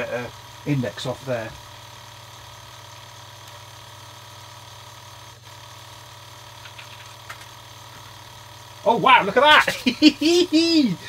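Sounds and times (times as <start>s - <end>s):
tape drive motor drone: 0.0s - 11.0s.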